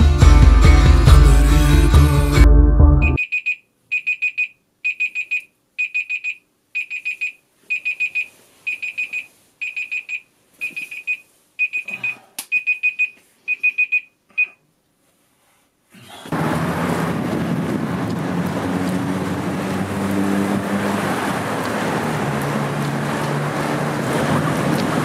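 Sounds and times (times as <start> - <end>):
music: 0.0 - 3.2
alarm clock beeping: 3.0 - 14.6.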